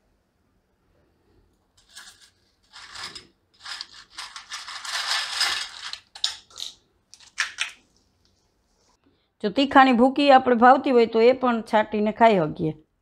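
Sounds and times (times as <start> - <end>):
potato chips rustling in steel bowl: 1.8 - 7.6.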